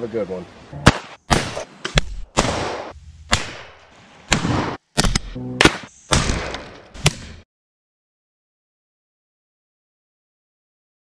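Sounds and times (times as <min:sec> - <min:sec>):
gunshots: 0:00.8 - 0:07.4.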